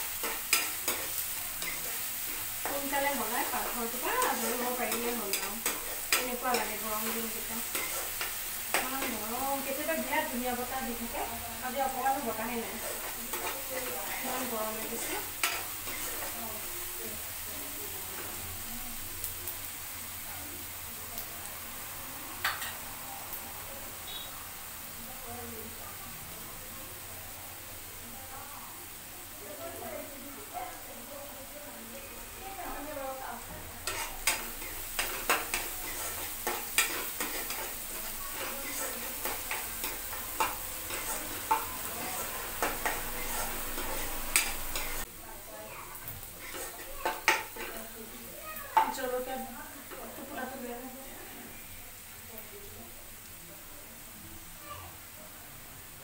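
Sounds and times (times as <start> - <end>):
spatula clacks: 0.0 - 9.4, 12.7 - 16.4, 22.4 - 22.8, 33.8 - 45.1, 46.2 - 47.9
spatula stirring and scraping: 0.0 - 10.8, 11.8 - 16.4, 33.8 - 45.1, 46.2 - 48.0
onions sizzling in hot oil: 0.0 - 56.0.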